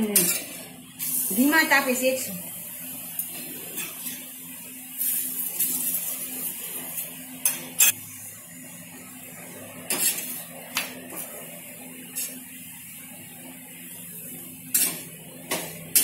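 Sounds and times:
ghee sizzling on griddle: 0:00.1 - 0:16.0
spatula scraping iron griddle: 0:03.2 - 0:04.3, 0:05.0 - 0:08.0, 0:09.8 - 0:11.4, 0:12.0 - 0:12.5, 0:14.6 - 0:16.0.

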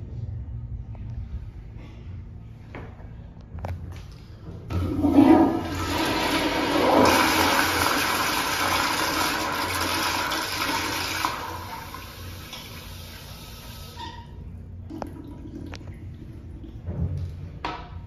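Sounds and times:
toilet flushing rush of water: 0:04.7 - 0:14.2.

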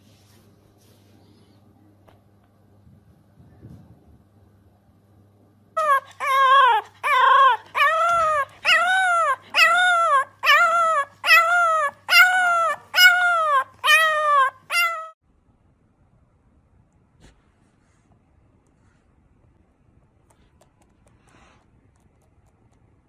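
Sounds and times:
puppy howling: 0:05.8 - 0:15.2.

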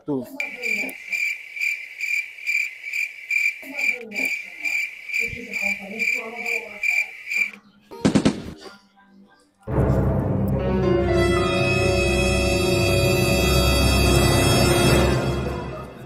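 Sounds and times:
cricket chirping: 0:00.3 - 0:07.6.

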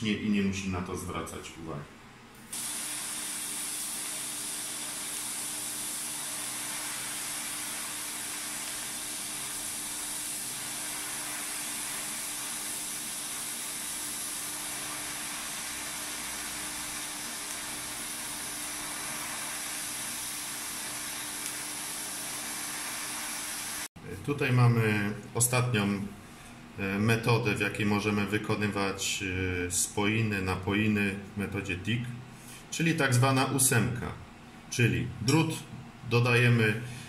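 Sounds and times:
welding arc hissing: 0:02.4 - 0:24.0.

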